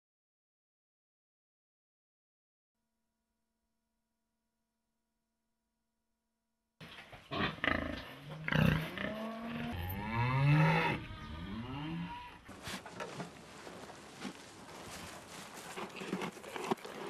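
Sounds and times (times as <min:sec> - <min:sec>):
cattle lowing: 0:07.4 - 0:17.0.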